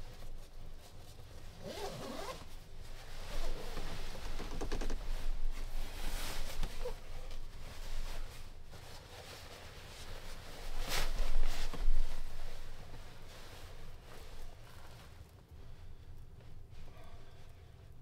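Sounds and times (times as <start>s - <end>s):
nylon rustling: 0.1s - 16.8s
sleeping bag zipper pulled: 1.6s - 2.5s.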